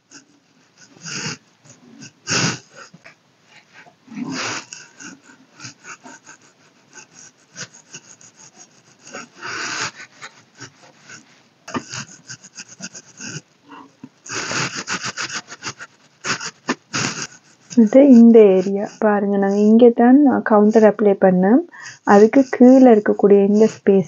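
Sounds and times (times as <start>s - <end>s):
makeup brush rubbing on skin: 22.1s - 24.0s.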